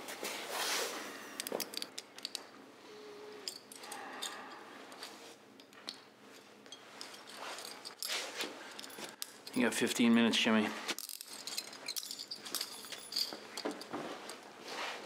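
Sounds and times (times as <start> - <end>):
handcuffs clicking and jingling: 1.4 - 2.5, 3.3 - 6.1, 6.7 - 10.2, 11.0 - 14.4.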